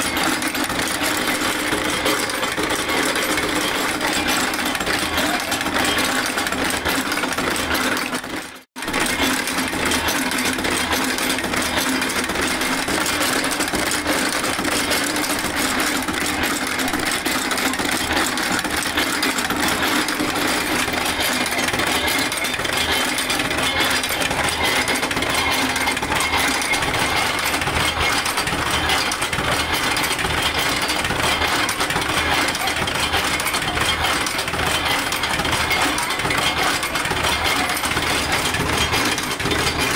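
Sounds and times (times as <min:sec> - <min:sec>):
chain-making machine clattering: 0:00.0 - 0:39.9.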